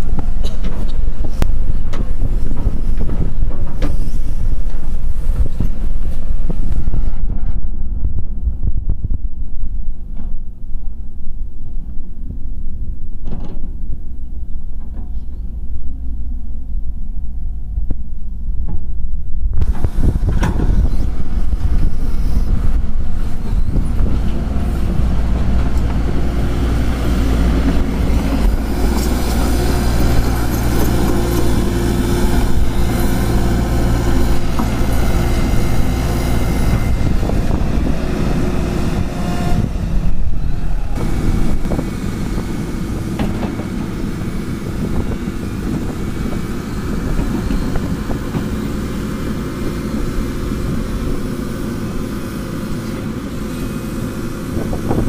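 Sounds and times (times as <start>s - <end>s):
knocks of earth and stones: 0.0s - 12.4s
excavator diesel engine running: 11.7s - 55.0s.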